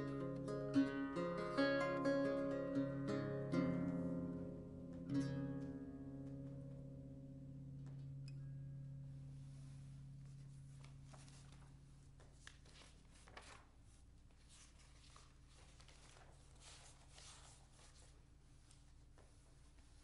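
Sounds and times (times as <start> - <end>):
lute chord: 0.0 - 11.5
sheet music pages rustling: 9.4 - 20.0.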